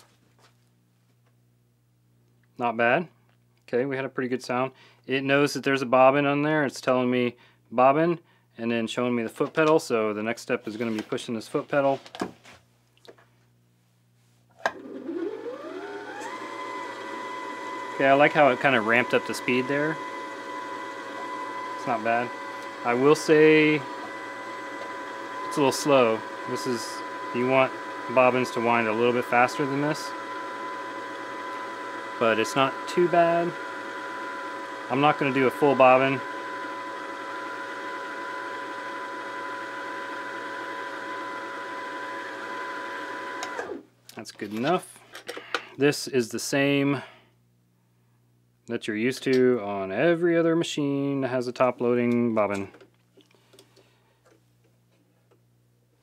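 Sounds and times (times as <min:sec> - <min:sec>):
sewing machine motor whine: 0:14.8 - 0:43.8.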